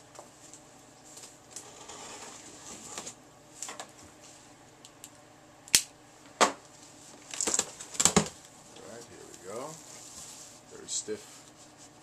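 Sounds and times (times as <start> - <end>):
cardboard scrapes: 1.7 - 3.2
sharp tape snaps: 5.7 - 5.9
cardboard and tape rustling: 7.1 - 12.0.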